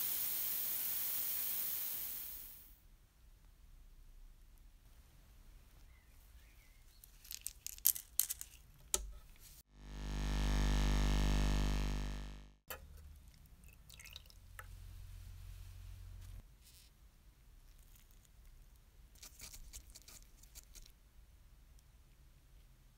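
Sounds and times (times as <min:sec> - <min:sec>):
ultrasonic cleaner humming: 0:09.7 - 0:12.6.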